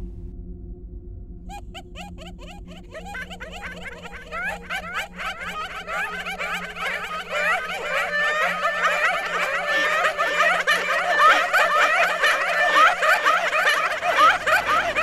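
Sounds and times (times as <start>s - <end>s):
low pulsing sound: 0.0s - 1.9s
chattering and giggling voices: 2.3s - 15.0s.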